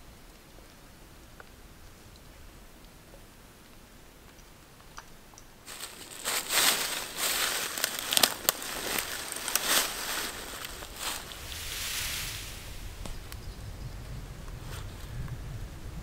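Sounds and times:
dry leaves rustling and crackling: 5.6s - 13.4s
twigs snapping: 5.7s - 11.6s.

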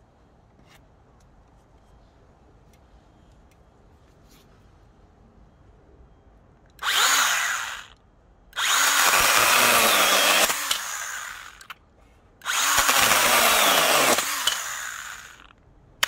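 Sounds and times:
mini chainsaw cutting wood: 6.8s - 8.0s, 8.6s - 11.7s, 12.4s - 15.6s.

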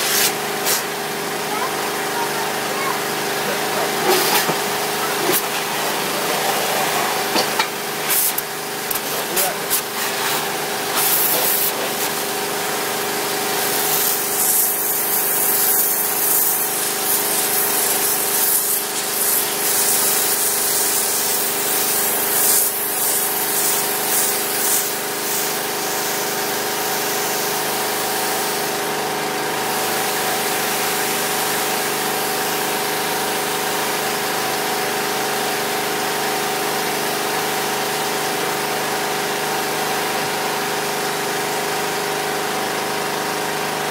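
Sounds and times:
water spray hissing: 0.0s - 0.9s, 8.0s - 12.2s, 13.6s - 26.2s
pressure washer engine drone: 0.0s - 43.9s.

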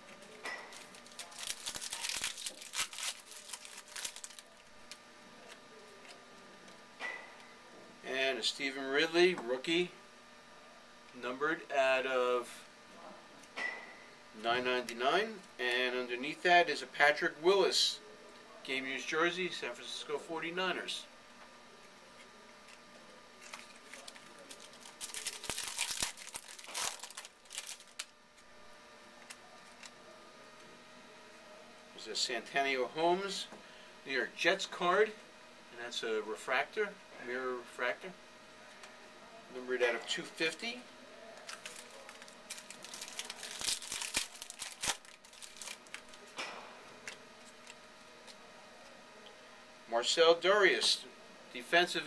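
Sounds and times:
foil snapping: 0.1s - 5.6s, 23.4s - 28.2s, 41.4s - 46.3s
wrapper tearing and crinkling: 0.2s - 5.0s, 23.4s - 28.2s, 41.4s - 46.3s.

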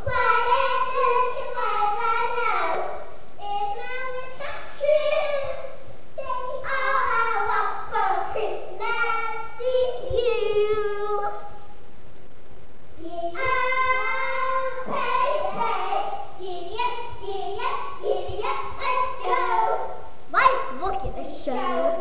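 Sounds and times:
girl singing unaccompanied: 0.0s - 11.7s, 13.0s - 22.0s.

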